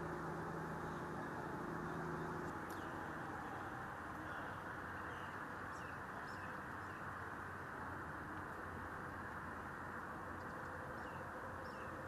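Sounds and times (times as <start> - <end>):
outdoor background hiss: 0.0 - 12.0
faint high bird chirps: 0.7 - 3.2, 10.5 - 12.0.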